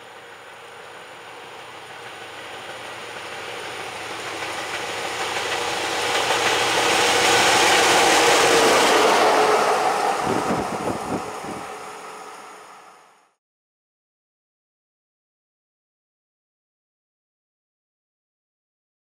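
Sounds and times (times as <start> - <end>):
locomotive running noise: 0.0 - 13.2.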